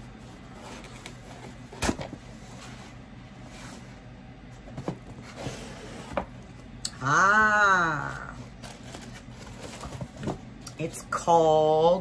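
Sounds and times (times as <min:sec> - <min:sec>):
cardboard clicks and scrapes: 0:08.5 - 0:10.4.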